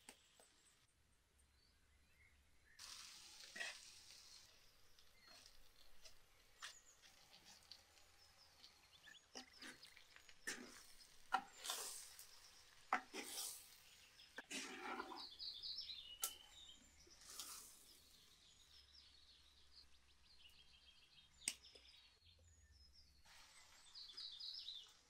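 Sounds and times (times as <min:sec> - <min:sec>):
food sizzling in a clay pot: 0:02.8 - 0:20.2, 0:23.3 - 0:25.0.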